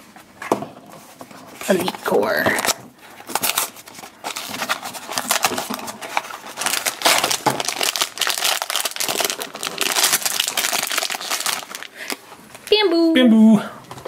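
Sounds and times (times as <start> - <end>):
foil bag crinkling and tearing: 1.6 - 12.2.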